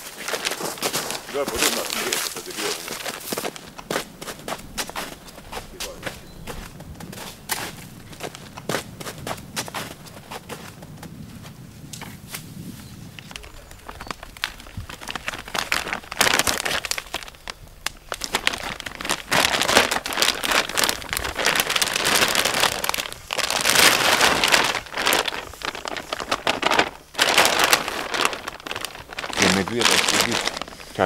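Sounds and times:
plastic bag crinkling: 0.0 - 6.0, 13.3 - 31.0.

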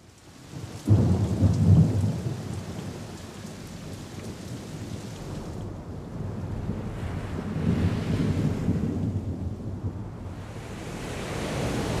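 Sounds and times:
surf rushing wash: 6.5 - 9.5, 10.2 - 12.0
wave crashing: 10.6 - 12.0.

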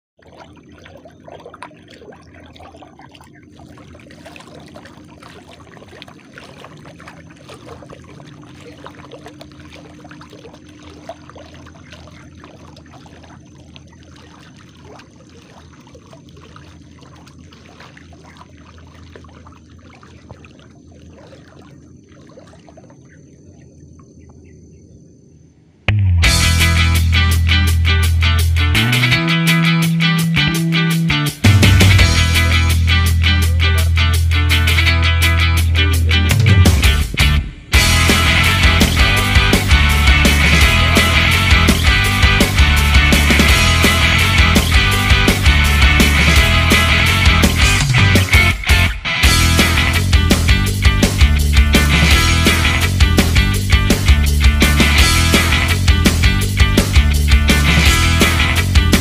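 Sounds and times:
water splashing underfoot: 0.2 - 24.5, 29.6 - 59.0
loud guitar music: 26.0 - 59.0.

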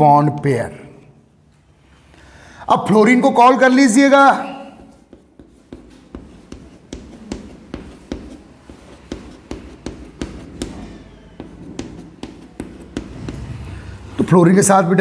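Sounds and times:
chalk scratching: 4.7 - 14.3
chalk tapping on blackboard: 4.9 - 13.8.

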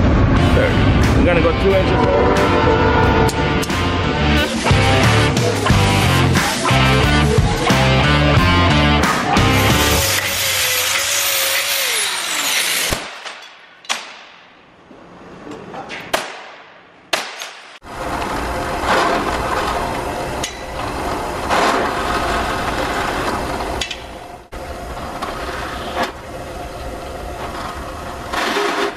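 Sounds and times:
angle grinder cutting steel: 9.3 - 13.0
drill press motor running: 9.4 - 12.9.

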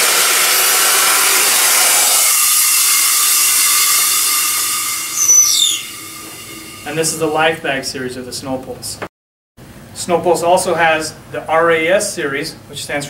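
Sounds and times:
rush of escaping air: 0.0 - 7.6
short falling whistle: 0.7 - 7.3.

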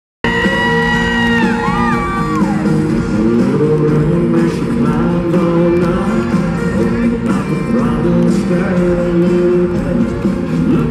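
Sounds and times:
live country band: 0.2 - 10.9
man singing: 2.6 - 10.9.

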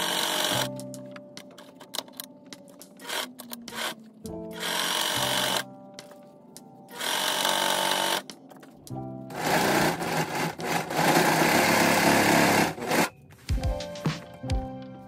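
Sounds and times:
sewing machine stitching denim: 0.0 - 0.7, 6.9 - 8.2, 9.3 - 13.1.

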